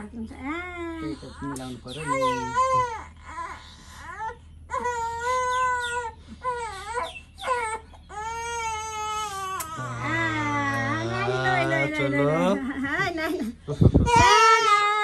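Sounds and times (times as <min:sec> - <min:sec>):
baby crying: 0:02.0 - 0:12.2, 0:14.0 - 0:15.0.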